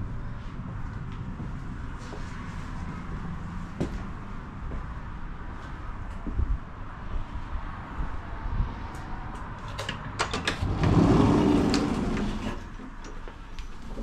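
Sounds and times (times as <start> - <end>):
tram low rumble: 0.0 - 9.7, 10.4 - 14.0
door opening with a rush: 10.0 - 12.8.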